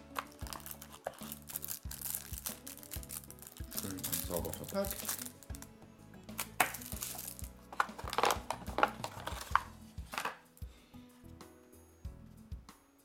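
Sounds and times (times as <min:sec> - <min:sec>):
plastic wrapping rustling: 0:00.1 - 0:05.7, 0:06.4 - 0:10.5.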